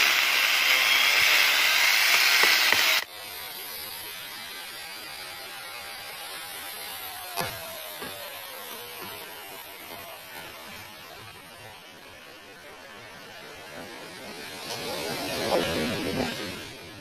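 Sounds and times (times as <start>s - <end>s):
outdoor hiss: 0.0s - 3.1s
angle grinder cutting wood: 0.0s - 10.8s.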